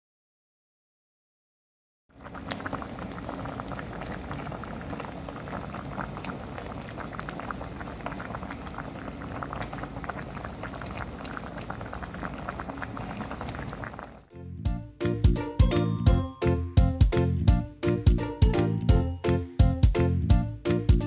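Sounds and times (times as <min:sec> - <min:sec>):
soup boiling and bubbling: 0:02.1 - 0:14.3.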